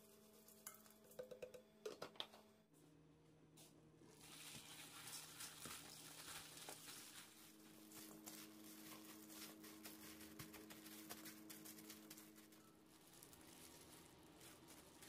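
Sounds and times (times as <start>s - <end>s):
radish rustling in a steel bowl: 4.1s - 15.0s.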